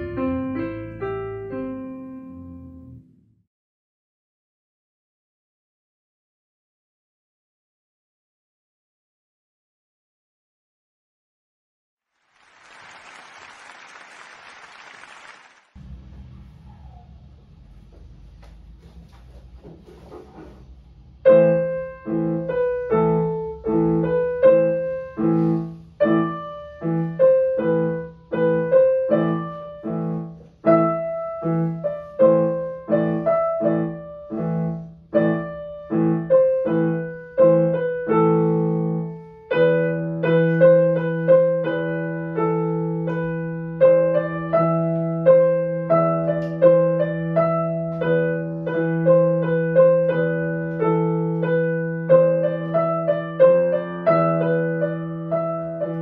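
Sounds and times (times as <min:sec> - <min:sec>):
digital piano piece: 0:00.0 - 0:03.4, 0:21.2 - 0:56.0.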